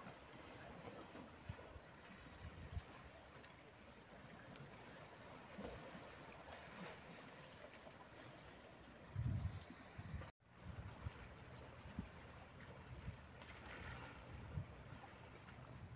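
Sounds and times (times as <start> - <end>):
sea water lapping on rocks: 0.0 - 15.9.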